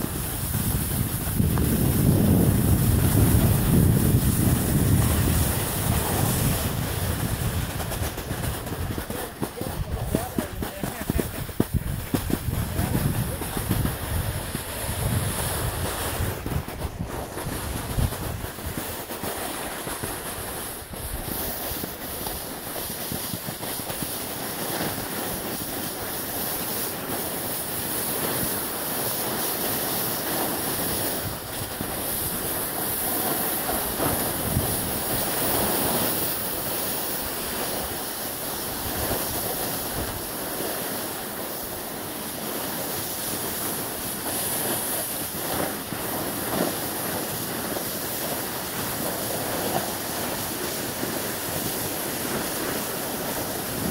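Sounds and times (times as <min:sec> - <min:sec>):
snowboard scraping over snow: 0:00.0 - 0:53.9
wind noise on microphone: 0:00.0 - 0:53.9.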